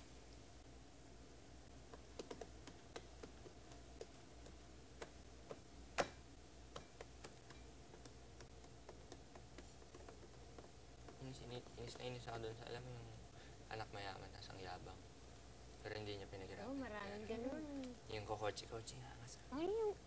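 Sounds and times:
low room hum: 0:00.0 - 0:20.0
small clicks and taps: 0:01.9 - 0:06.1.

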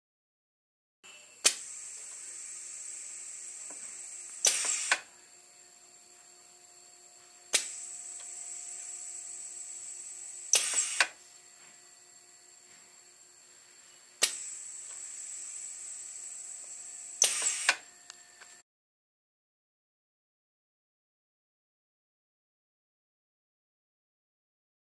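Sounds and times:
air cylinder hissing: 0:01.1 - 0:18.6
ram release burst: 0:01.4 - 0:05.1, 0:09.8 - 0:11.2, 0:14.2 - 0:16.0, 0:17.1 - 0:17.8.

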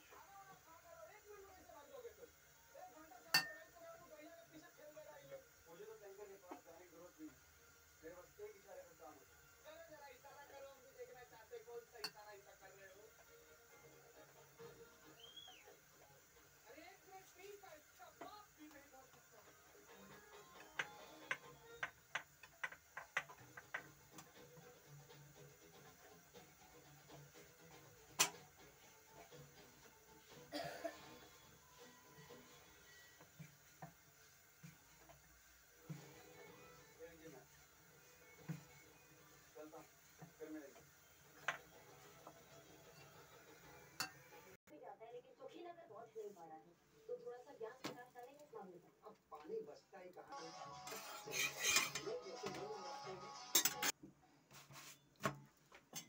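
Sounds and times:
metal clinking on griddle: 0:03.3 - 0:03.8, 0:44.0 - 0:44.3, 0:50.9 - 0:52.2, 0:53.5 - 0:53.9.

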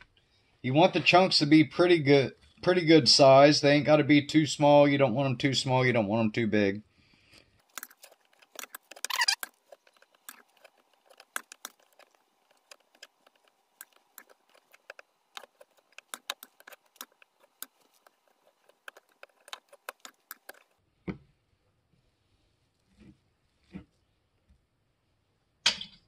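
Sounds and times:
forks clicking and scraping: 0:07.6 - 0:20.8.

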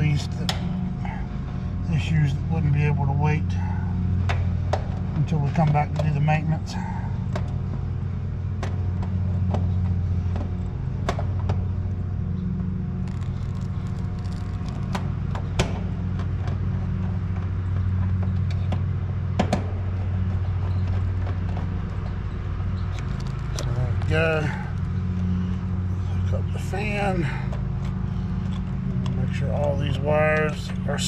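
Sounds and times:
air conditioning unit humming: 0:00.0 - 0:31.0
clicks and taps of tools on wiring: 0:27.5 - 0:30.8.

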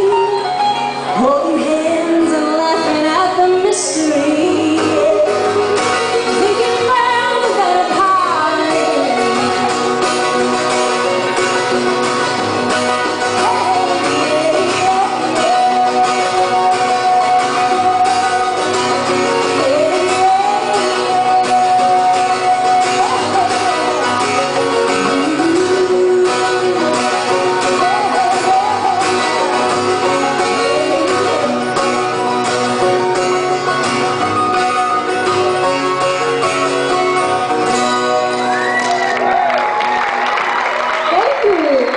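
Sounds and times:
woman singing: 0:00.0 - 0:11.9, 0:12.8 - 0:32.3
acoustic guitar: 0:00.0 - 0:41.9.

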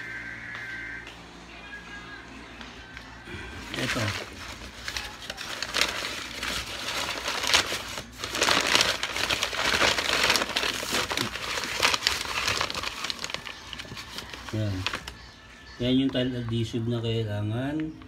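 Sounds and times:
paper sack crinkling: 0:03.3 - 0:16.3.

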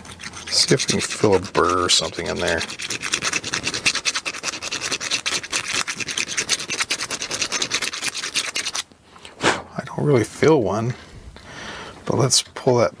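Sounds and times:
hand file rasping in a hole: 0:00.0 - 0:08.8.

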